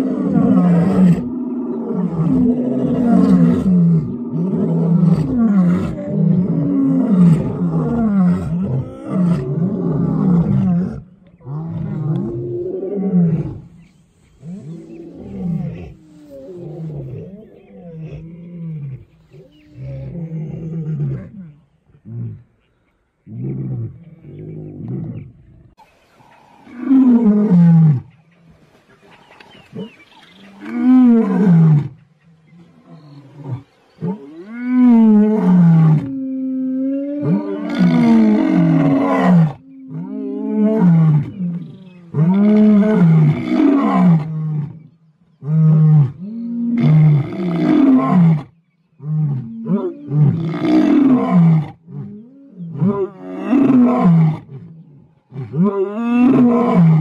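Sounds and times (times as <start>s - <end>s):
lion roaring: 0.0s - 13.8s, 32.6s - 44.8s, 49.0s - 57.0s.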